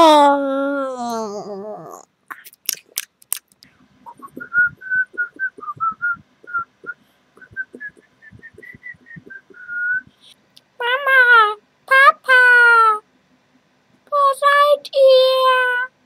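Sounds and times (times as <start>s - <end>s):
person whistling a lively tune: 4.1s - 10.1s.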